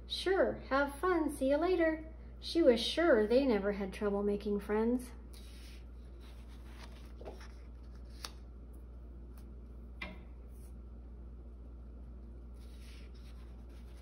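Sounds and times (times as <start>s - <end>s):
low steady hum: 0.0s - 14.0s
paper page rustling: 5.4s - 8.4s, 12.5s - 14.0s.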